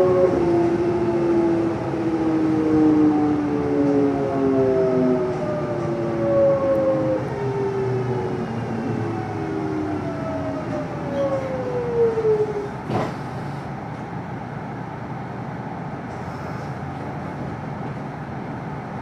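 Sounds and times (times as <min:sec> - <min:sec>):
standing train humming: 0:00.0 - 0:19.0
train clunk: 0:12.6 - 0:14.2.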